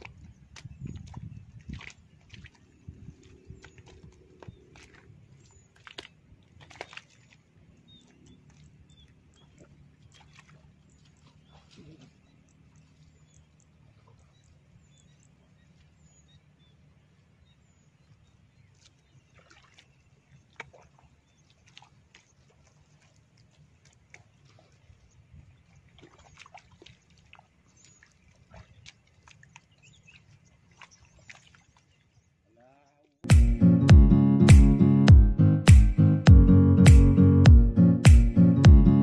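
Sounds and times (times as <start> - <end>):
bare feet squelching in mud: 0.0 - 12.2, 20.5 - 24.9, 25.9 - 31.9.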